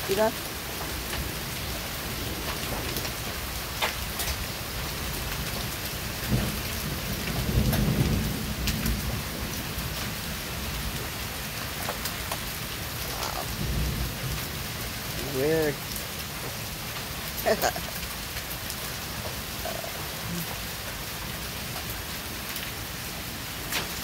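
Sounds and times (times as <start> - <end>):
hailstones ticking: 0.0 - 24.0
heavy rain pouring: 0.0 - 24.0
low rumble of thunder: 0.4 - 16.8.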